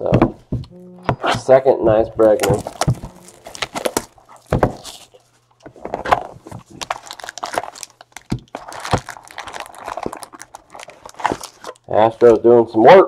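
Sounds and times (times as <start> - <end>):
cardboard rustling: 1.1 - 11.8
cardboard tearing: 2.2 - 5.3, 5.9 - 11.8
knocks on cardboard box: 4.5 - 4.8.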